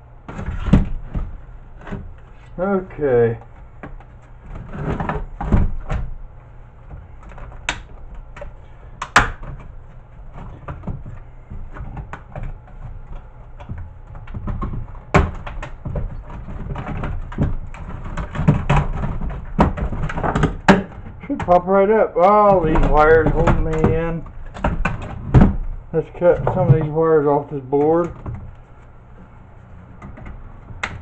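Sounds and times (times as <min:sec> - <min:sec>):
plastic casing knocks and rattles: 0:06.9 - 0:21.7, 0:22.3 - 0:27.1.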